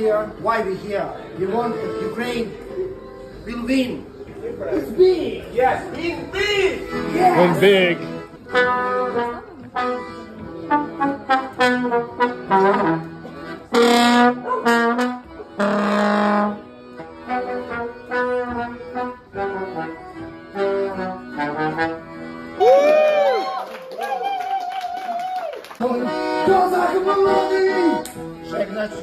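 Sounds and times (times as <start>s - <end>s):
wind instrument slow melody: 6.4s - 23.4s, 25.9s - 29.0s.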